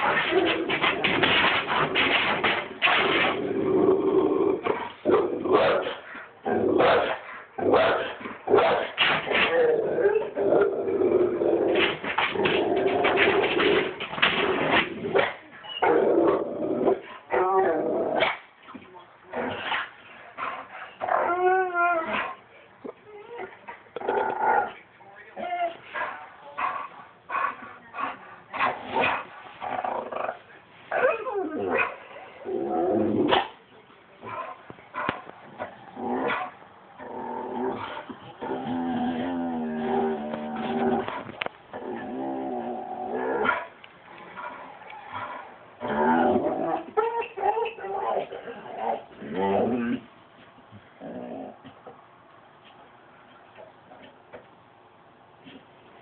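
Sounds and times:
dog growling: 0.0 - 8.6, 9.2 - 15.2, 23.1 - 24.8, 26.6 - 33.5, 34.2 - 50.1, 51.0 - 51.7
dog barking: 5.5 - 6.0, 6.8 - 8.9.

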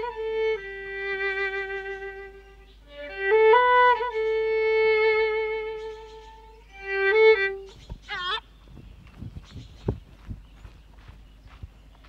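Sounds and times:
solo violin playing slow notes: 0.0 - 8.4.

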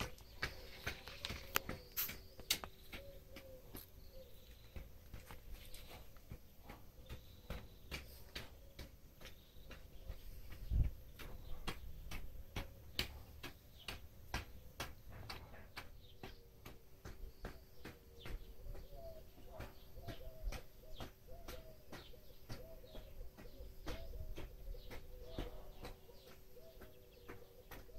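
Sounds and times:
sharp clicking ticks: 0.0 - 18.9
bird cooing softly: 2.9 - 4.9, 18.1 - 27.9.

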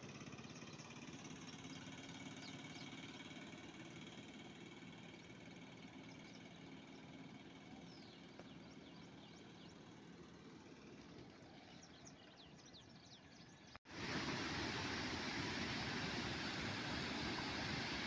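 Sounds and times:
river water rushing over weir: 13.9 - 18.0.

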